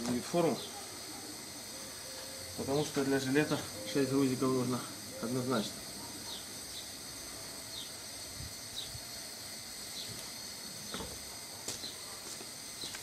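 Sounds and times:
small high chirps: 0:00.5 - 0:11.1
footsteps on concrete floor: 0:10.9 - 0:13.0.

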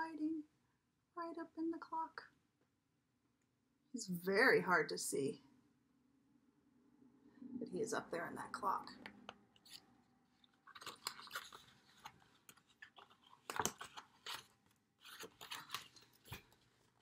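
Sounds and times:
stiff book pages turning: 0:09.2 - 0:17.0.

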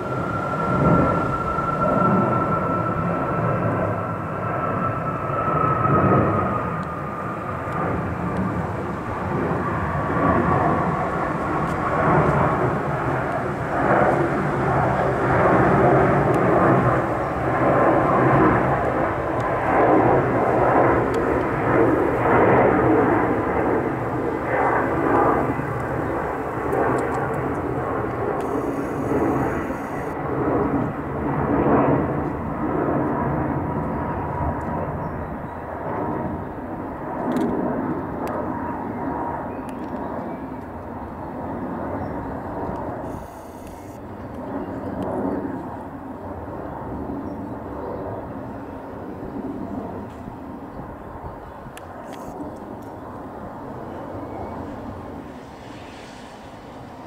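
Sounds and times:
jet fan whine: 0:00.0 - 0:05.2, 0:06.2 - 0:30.2, 0:43.0 - 0:44.3
loud jet roar: 0:00.0 - 0:35.0, 0:40.6 - 0:46.6, 0:48.2 - 0:57.0.

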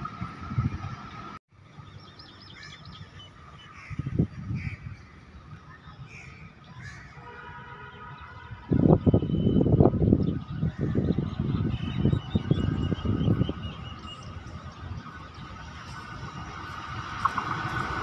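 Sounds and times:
birds chirping and calling: 0:01.8 - 0:07.3, 0:08.0 - 0:16.0
locomotive horn: 0:07.2 - 0:09.8.

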